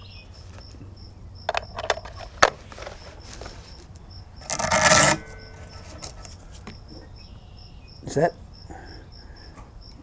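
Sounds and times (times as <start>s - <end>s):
rifle scraping: 1.9s - 6.6s.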